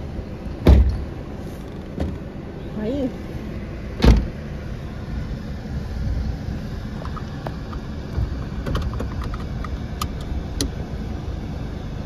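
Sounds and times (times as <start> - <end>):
car interior rumble: 0.0 - 12.0
car door thudding shut: 0.6 - 1.1, 1.9 - 2.2, 4.0 - 4.4.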